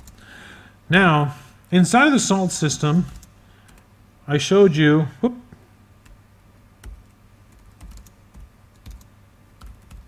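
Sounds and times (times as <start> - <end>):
keyboard typing: 0.0 - 0.2, 3.0 - 3.9, 6.8 - 10.0.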